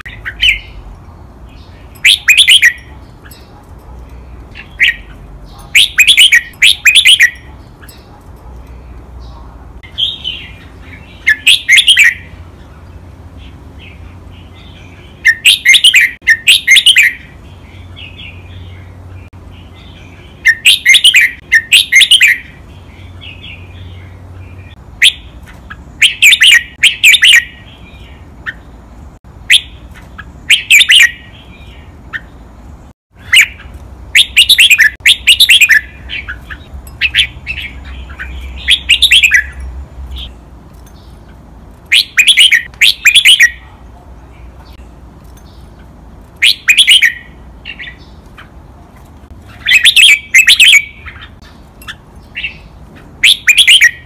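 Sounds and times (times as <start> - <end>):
bird singing whistled phrases: 2.0 - 2.9, 5.8 - 7.5, 11.2 - 12.3, 15.2 - 17.3, 20.4 - 22.6, 26.0 - 27.7, 30.5 - 31.3, 34.2 - 39.6, 41.9 - 43.6, 46.4 - 48.0, 49.6 - 51.3, 53.2 - 54.0.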